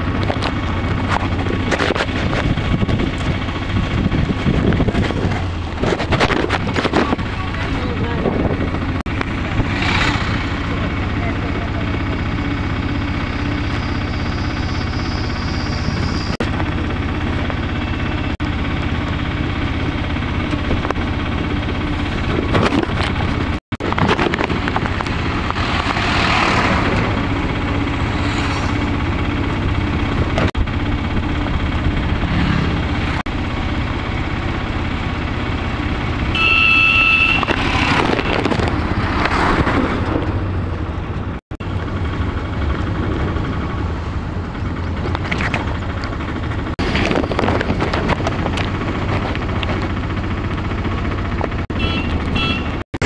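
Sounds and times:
auto-rickshaw engine running: 0.0 - 53.0
wind and road noise: 0.0 - 53.0
vehicle horn beep: 36.3 - 38.6, 51.7 - 52.8.

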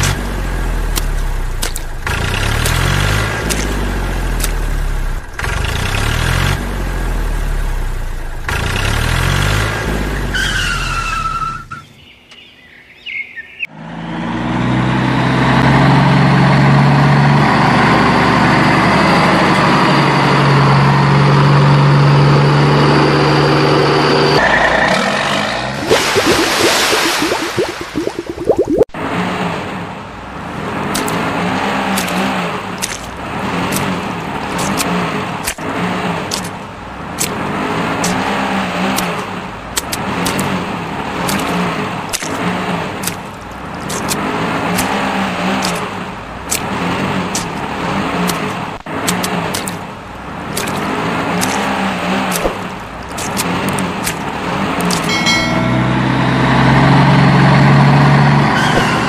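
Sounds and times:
car engine revving: 0.0 - 10.3.

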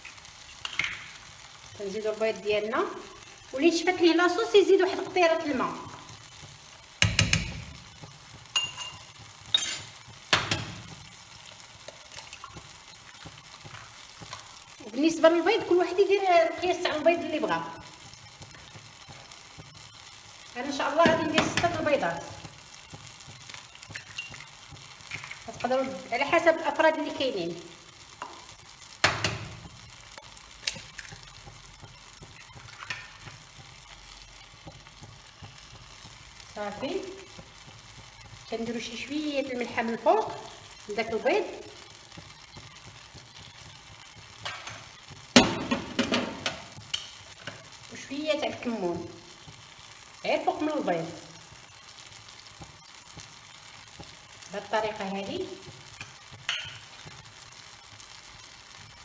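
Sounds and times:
sauce simmering: 0.0 - 59.0
metal spoon clinking on pan: 8.5 - 9.8, 23.9 - 24.4, 56.5 - 56.9.

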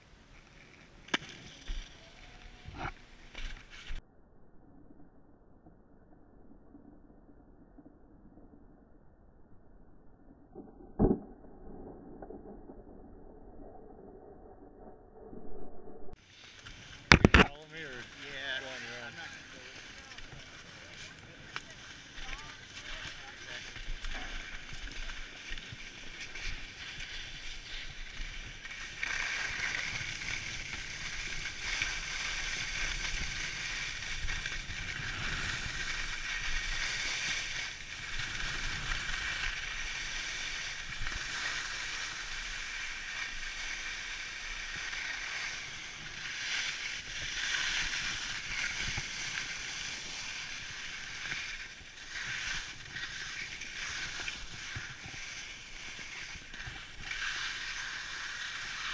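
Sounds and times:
skis hissing over snow: 16.2 - 58.9
wind rumbling on microphone: 19.3 - 58.9.

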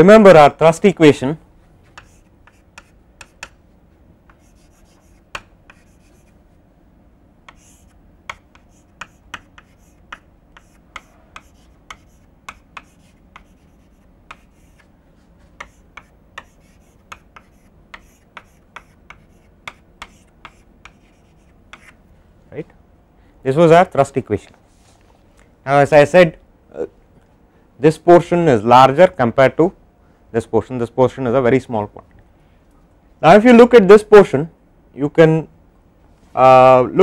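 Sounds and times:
faint low hum: 0.0 - 37.0
chalk scratching: 1.8 - 3.6, 4.3 - 6.4, 7.5 - 22.0
chalk tapping on blackboard: 1.9 - 3.6, 4.3 - 6.3, 7.5 - 14.9, 15.6 - 22.0.

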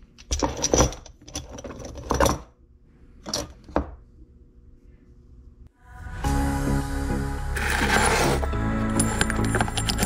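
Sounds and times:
brass cartridge cases clinking: 8.9 - 10.0.

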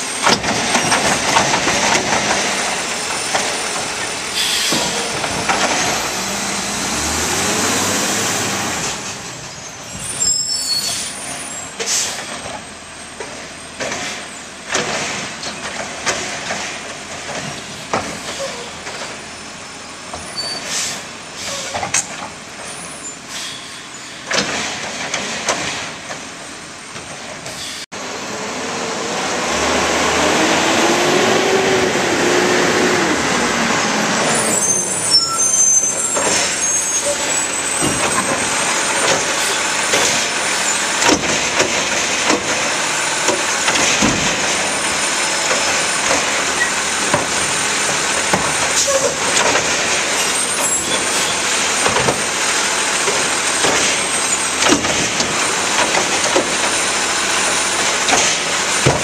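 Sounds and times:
garbage truck engine revving: 0.0 - 23.3, 24.0 - 59.0
knocks and clanks: 0.2 - 6.4, 11.3 - 19.2, 24.2 - 26.3, 35.9 - 59.0.

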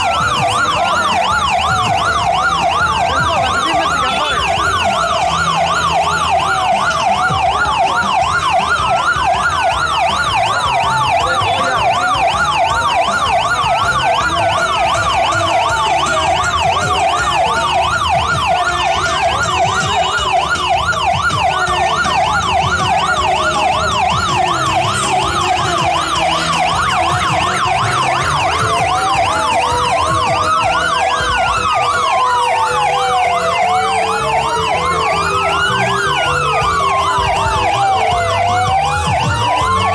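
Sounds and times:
siren wailing: 0.0 - 39.9
siren yelping: 0.0 - 39.9.

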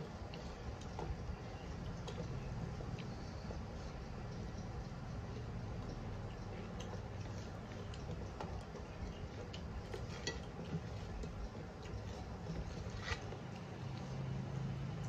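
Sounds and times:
steady low hum: 0.0 - 15.0
hands scraping rice on metal plates: 12.0 - 13.4.

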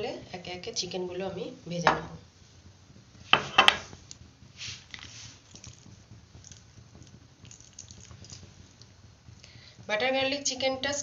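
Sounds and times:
gas burner humming: 0.0 - 11.0
rustles: 3.2 - 9.5.

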